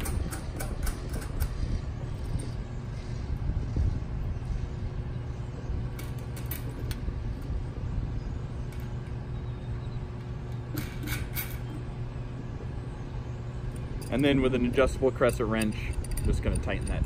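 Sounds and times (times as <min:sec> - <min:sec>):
faint steady hum: 0:00.0 - 0:17.0
low outdoor rumble: 0:00.0 - 0:17.0
small metallic clicks: 0:15.2 - 0:17.0.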